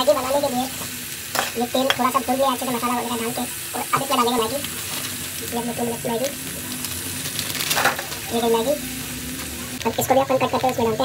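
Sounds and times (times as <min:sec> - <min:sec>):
stirring in a pan: 0:00.0 - 0:10.8
masala sizzling in a steel pan: 0:00.0 - 0:11.0
background voice: 0:01.5 - 0:04.7, 0:05.4 - 0:06.8.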